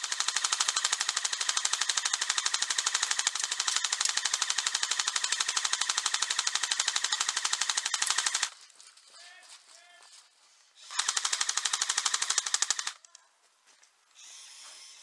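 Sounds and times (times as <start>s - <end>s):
airsoft rifle bursts: 0.0s - 8.6s, 10.8s - 13.1s.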